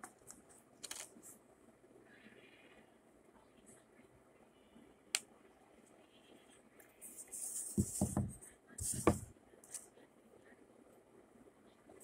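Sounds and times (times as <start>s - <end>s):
soft knocks: 7.8s - 8.4s.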